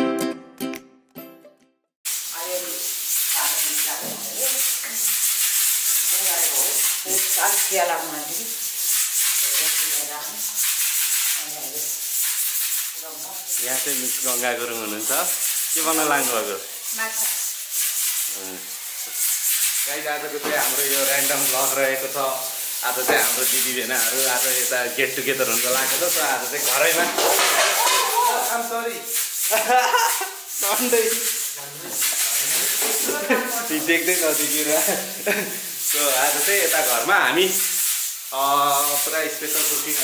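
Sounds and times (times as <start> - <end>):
loud steady hiss: 2.1 - 40.0
people talking: 2.4 - 5.0, 6.1 - 8.5, 9.4 - 10.4, 11.4 - 11.9, 13.0 - 17.4, 19.9 - 37.6, 38.4 - 40.0.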